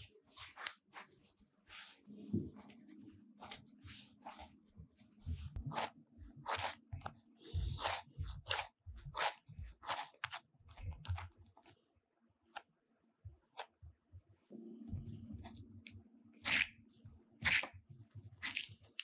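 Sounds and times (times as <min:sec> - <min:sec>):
dough kneading squelches: 0:00.0 - 0:19.0.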